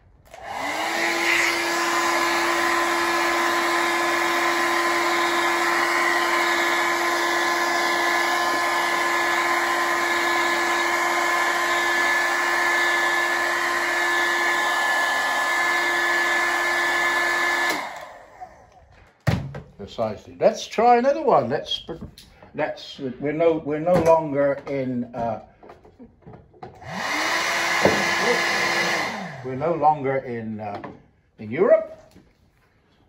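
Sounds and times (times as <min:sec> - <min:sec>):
hair dryer running: 0:00.2 - 0:18.8, 0:26.7 - 0:30.0.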